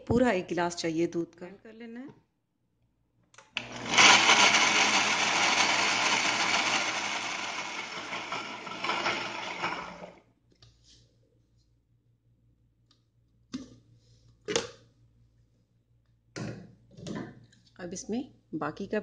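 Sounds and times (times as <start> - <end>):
blender running: 3.5 - 10.2.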